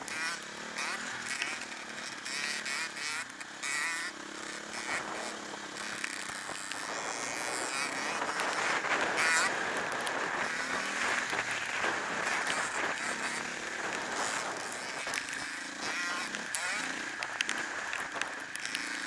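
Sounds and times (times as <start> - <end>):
faint dirt bike engine: 0.0 - 19.0
wind buffeting camera: 4.6 - 19.0.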